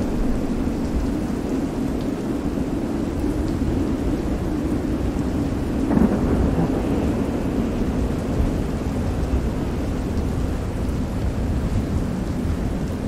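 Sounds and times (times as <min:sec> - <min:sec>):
heavy rain: 0:00.0 - 0:13.0
thunder rumbling: 0:05.6 - 0:09.9.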